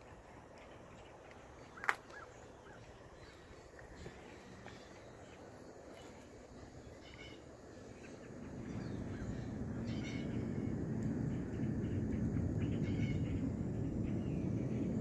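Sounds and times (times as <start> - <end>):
birds chirping: 0.0 - 15.0
low rumble: 7.6 - 15.0.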